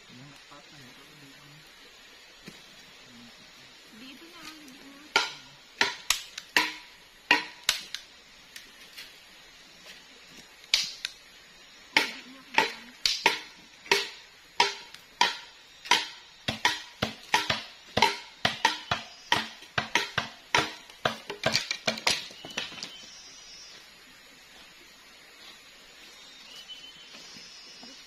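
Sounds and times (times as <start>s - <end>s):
blade chopping wood: 5.1s - 8.0s, 12.0s - 22.9s.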